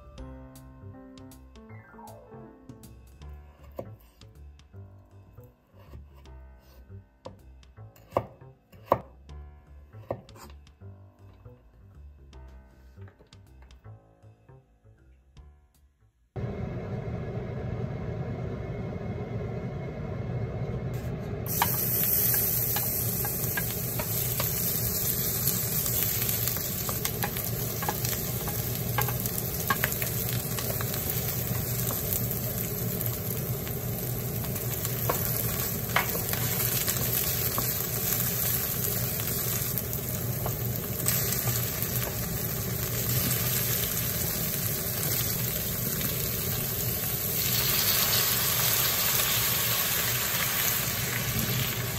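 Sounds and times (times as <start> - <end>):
low steady hum: 16.4 - 51.9
leek sizzling in hot oil: 21.5 - 51.9.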